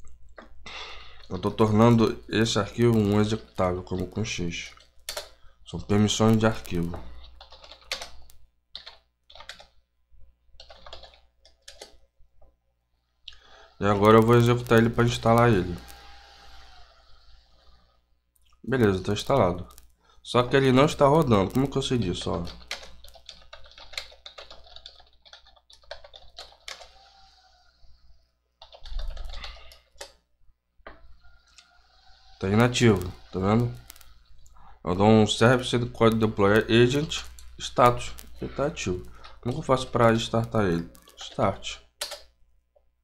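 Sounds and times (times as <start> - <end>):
typing on computer keyboard: 4.7 - 5.4, 6.2 - 9.8, 10.6 - 12.0, 20.6 - 27.1, 28.6 - 30.2, 39.0 - 42.3.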